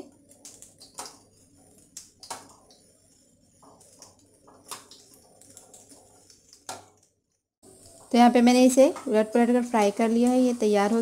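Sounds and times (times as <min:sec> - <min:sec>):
oil crackling sizzle: 0:00.0 - 0:11.0
sharp pops and clicks: 0:00.2 - 0:07.2.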